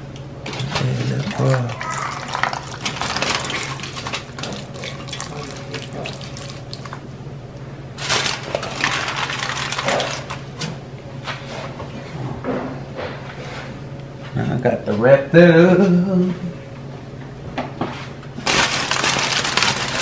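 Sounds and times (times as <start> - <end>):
broth splashing and trickling: 1.2 - 7.0.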